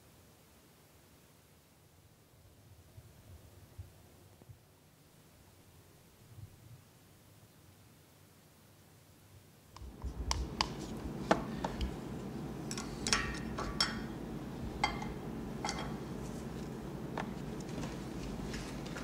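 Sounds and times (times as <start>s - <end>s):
room hum: 0.0s - 19.0s
glass jars clinking: 14.8s - 16.0s.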